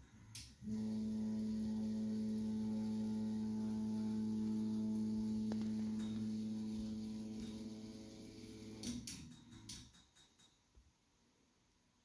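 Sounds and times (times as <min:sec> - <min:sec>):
spindle motor humming: 0:00.6 - 0:09.1.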